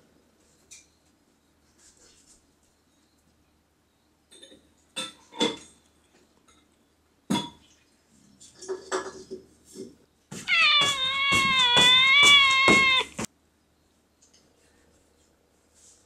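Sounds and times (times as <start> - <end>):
cat meowing: 10.4 - 13.3.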